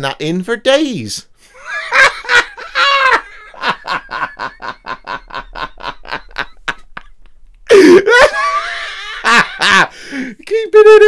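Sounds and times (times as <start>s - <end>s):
man laughing: 1.5s - 10.3s.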